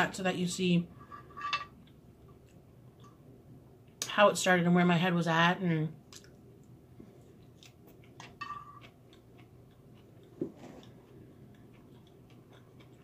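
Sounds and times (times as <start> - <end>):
quiet chewing: 6.1 - 13.0.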